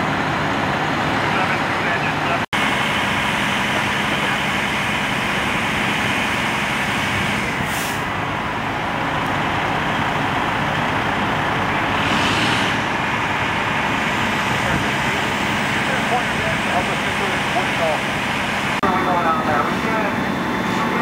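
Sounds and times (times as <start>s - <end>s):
diesel engines running: 0.0s - 21.0s
sharp air hiss: 12.0s - 12.7s.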